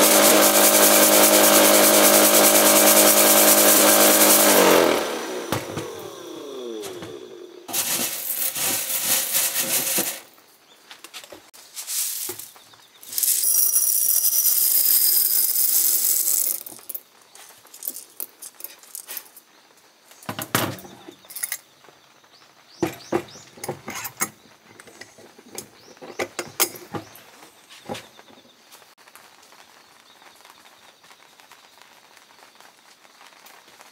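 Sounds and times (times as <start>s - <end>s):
coffee beans rattling in strainer: 0.0s - 6.2s, 7.7s - 10.3s, 11.7s - 19.4s
beans scraped with metal tool: 7.7s - 10.3s, 11.7s - 19.4s.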